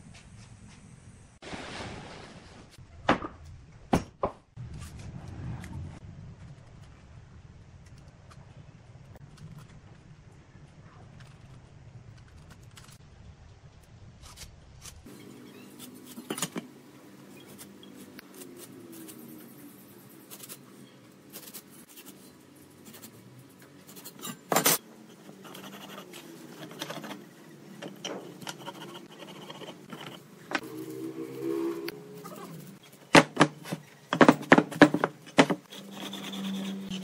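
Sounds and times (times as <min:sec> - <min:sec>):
metal square clicking and scraping: 0:21.3 - 0:30.6
pen scratching on wood: 0:25.2 - 0:27.3, 0:28.3 - 0:30.3.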